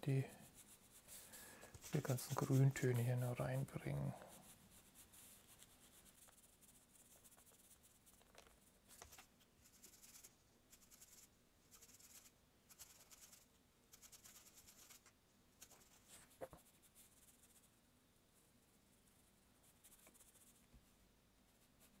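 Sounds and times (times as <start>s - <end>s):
paintbrush swishing: 0.0s - 8.2s, 9.0s - 17.7s.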